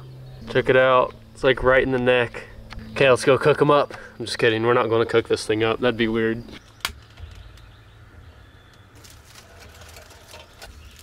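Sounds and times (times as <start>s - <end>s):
fire crackling: 8.7s - 11.0s.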